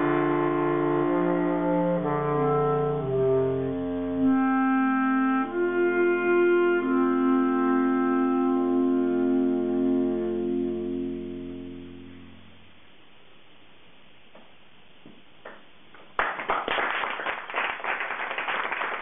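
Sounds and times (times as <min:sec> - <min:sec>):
bass clarinet quartet chords: 0:00.0 - 0:12.8.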